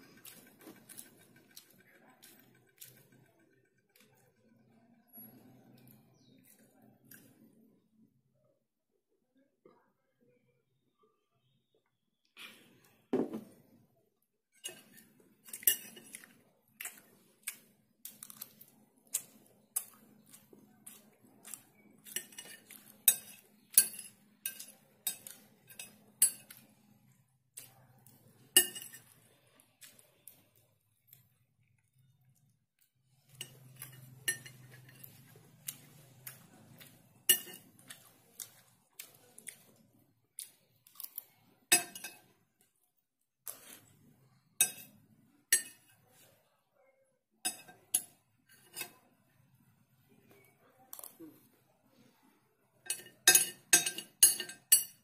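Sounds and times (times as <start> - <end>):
cutlery clinking on ceramic plate: 14.6 - 17.0, 21.5 - 26.7, 28.5 - 29.2, 33.3 - 38.0, 41.7 - 42.3, 44.6 - 46.0, 47.5 - 49.0, 52.8 - 55.0.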